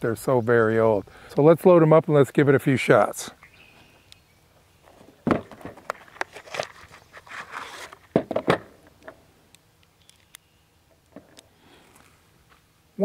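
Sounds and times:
scratchy rustle: 6.0 - 8.1.

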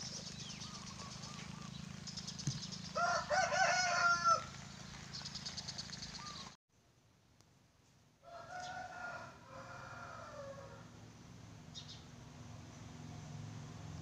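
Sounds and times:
rooster crowing: 3.0 - 4.6, 8.2 - 11.0.

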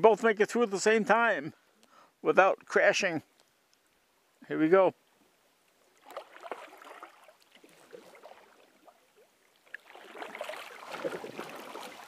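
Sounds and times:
paddles splashing in water: 5.9 - 12.0.

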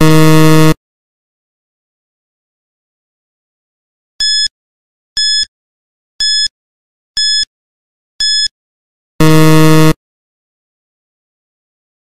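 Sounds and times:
low buzzer tone: 0.0 - 0.8, 9.2 - 10.0.

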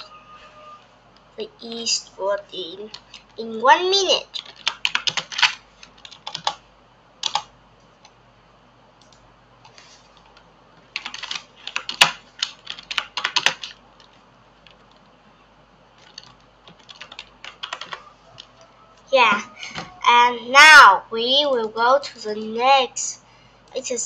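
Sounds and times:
keyboard typing: 2.9 - 3.4, 4.3 - 6.6, 7.2 - 8.2, 9.0 - 15.1, 16.0 - 20.0.

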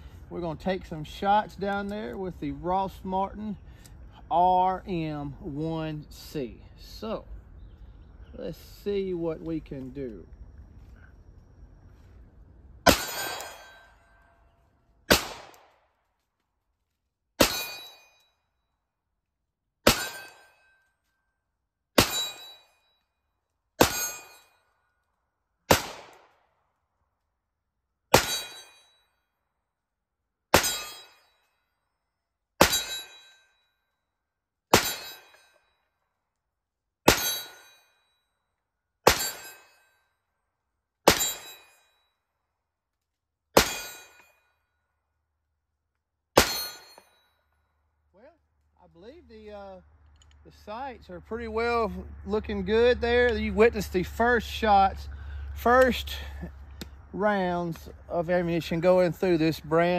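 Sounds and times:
pistol shots: 12.8 - 13.8, 15.1 - 15.8, 25.7 - 26.4, 28.1 - 28.7, 30.5 - 31.1, 37.1 - 37.6, 39.0 - 39.6, 43.6 - 44.0
steel targets ringing: 12.8 - 14.6, 17.4 - 18.5, 19.8 - 21.1, 22.0 - 23.1, 23.8 - 24.8, 28.1 - 29.2, 30.6 - 31.7, 32.6 - 33.8, 34.7 - 35.9, 37.1 - 38.2, 39.1 - 40.2, 41.1 - 42.3, 43.6 - 44.6, 46.4 - 47.5.

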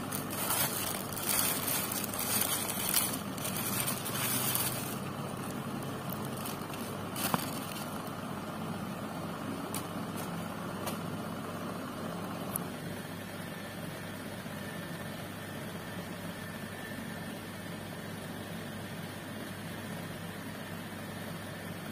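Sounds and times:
plastic bag rustling: 0.0 - 8.2, 9.7 - 11.0
low machine hum: 0.0 - 21.9.

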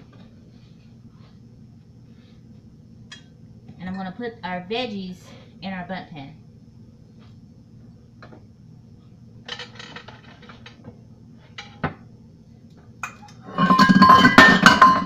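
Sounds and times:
kitchenware clinking and tapping: 13.0 - 15.0.

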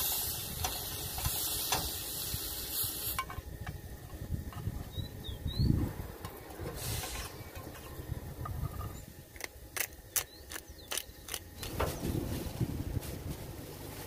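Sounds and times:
wind rumble on microphone: 0.1 - 9.4, 11.6 - 14.0
spice grinder ratcheting clicks: 9.4 - 11.7.

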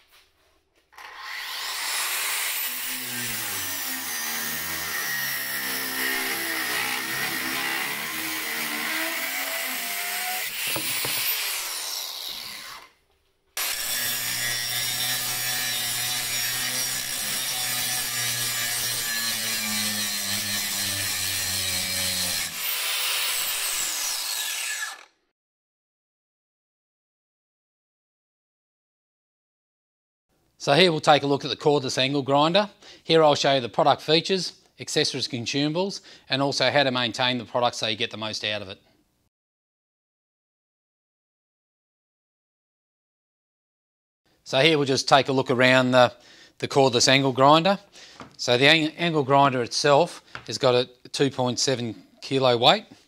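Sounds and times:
angle grinder cutting steel: 1.0 - 13.0, 13.6 - 25.2.

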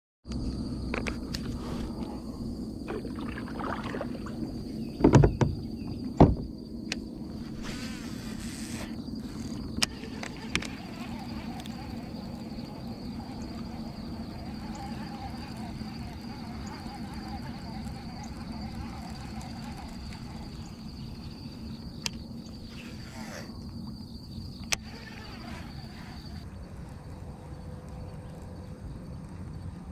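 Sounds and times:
low outdoor rumble: 0.3 - 22.8
high insect drone: 0.3 - 29.9
fishing reel spool whirring: 7.6 - 26.5.

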